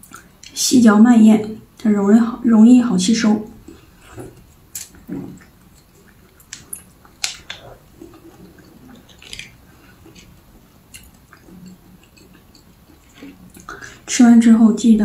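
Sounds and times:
wet chewing mouth sounds: 3.6 - 14.1.

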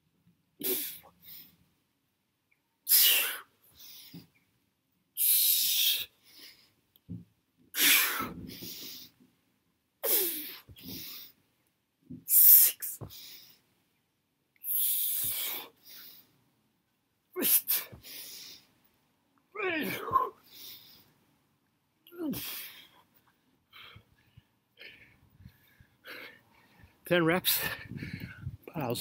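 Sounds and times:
man breathing hard: 14.7 - 16.4, 17.5 - 18.8, 22.3 - 28.6.

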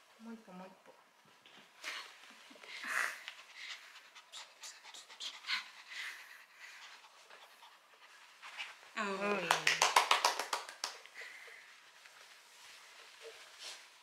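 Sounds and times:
small dog panting: 1.8 - 8.9.

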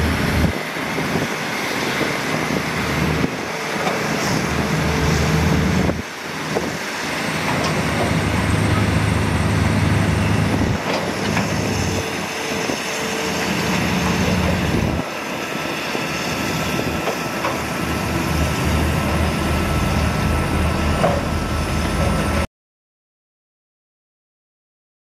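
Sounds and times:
bulldozer diesel engine under load: 0.0 - 22.5
steel tracks clattering: 0.0 - 22.5.

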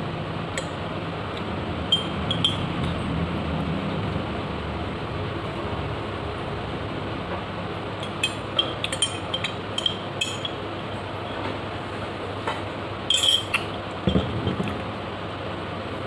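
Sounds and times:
metal spoon clinking in glass jar: 1.9 - 3.0, 8.0 - 10.6, 13.1 - 14.8.

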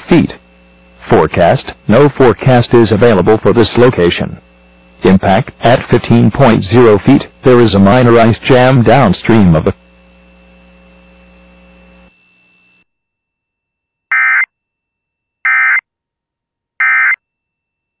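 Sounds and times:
faint steady hum: 0.0 - 12.9.

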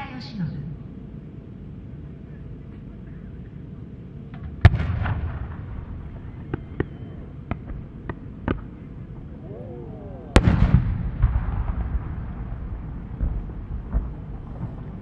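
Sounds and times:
firework deep boom with echo: 4.6 - 7.8, 9.6 - 15.0
firework sharp pops: 6.4 - 8.7, 10.3 - 12.2, 13.2 - 14.9.

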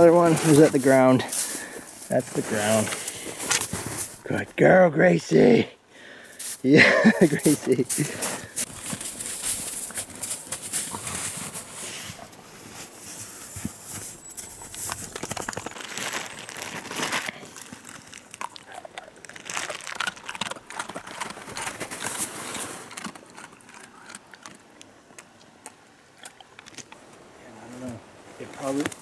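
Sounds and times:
dry leaves rustling and crackling: 6.4 - 12.0, 12.9 - 23.1.

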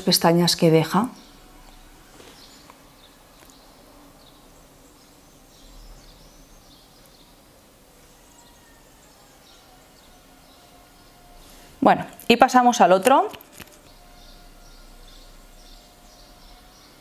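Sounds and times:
faint high chirps: 8.0 - 11.4.

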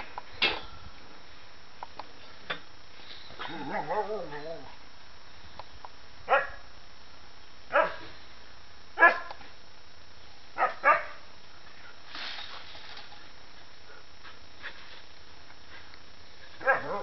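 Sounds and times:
dog barking: 6.3 - 6.6, 7.7 - 8.0, 9.0 - 9.3, 10.6 - 11.2, 16.6 - 17.0.

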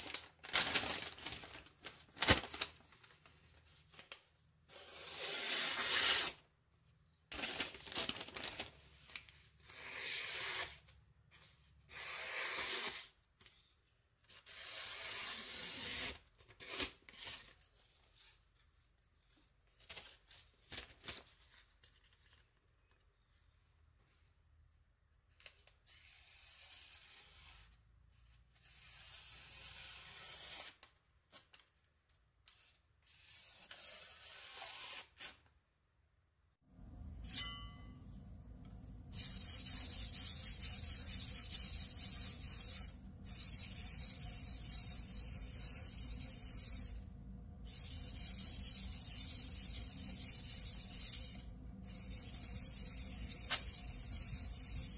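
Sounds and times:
newspaper crinkling: 0.0 - 4.2, 7.3 - 9.4, 19.8 - 22.9
rasping rub: 39.2 - 47.0.

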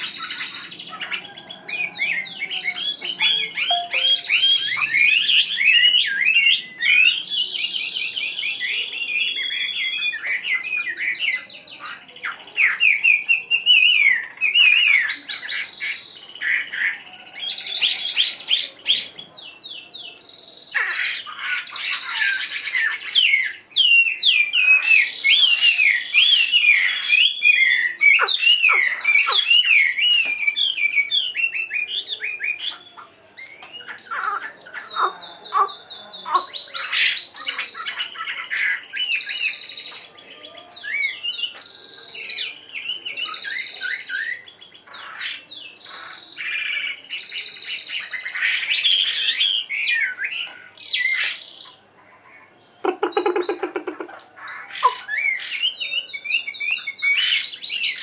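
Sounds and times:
bird singing whistled song: 0.0 - 51.8, 52.7 - 58.0.

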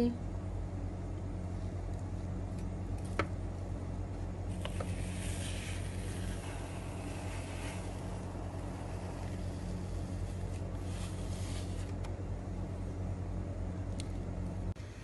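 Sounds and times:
low background hum: 0.0 - 15.0
ice cream scoop scraping metal tray: 4.6 - 12.0.

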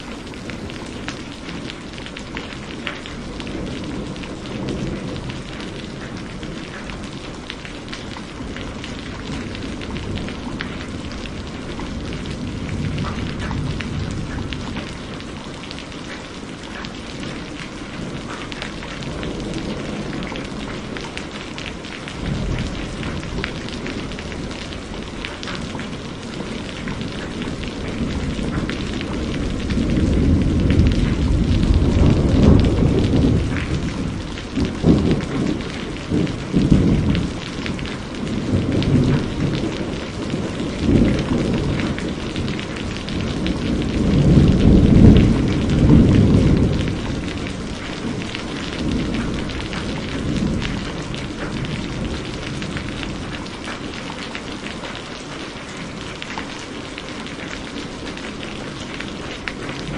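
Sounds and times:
heavy rain hissing: 0.0 - 2.4
thunder rumbling: 0.0 - 2.6, 17.3 - 53.7.

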